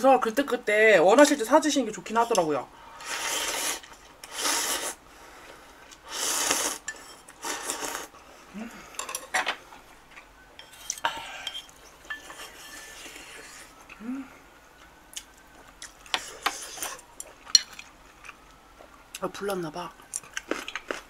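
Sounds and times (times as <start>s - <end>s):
noodles slurped from bowl: 3.0s - 5.0s, 6.1s - 6.8s, 7.4s - 8.1s.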